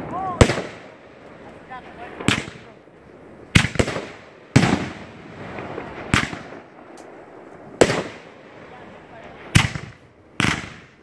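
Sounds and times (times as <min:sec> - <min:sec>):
firework shells bursting: 0:03.4 - 0:08.6.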